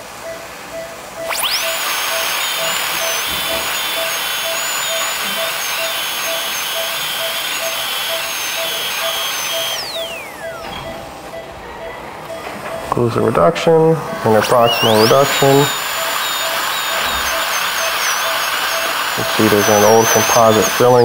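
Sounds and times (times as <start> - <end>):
dental drill whining: 1.3 - 11.1, 13.7 - 21.0
short beeps: 6.2 - 13.2, 14.0 - 21.0.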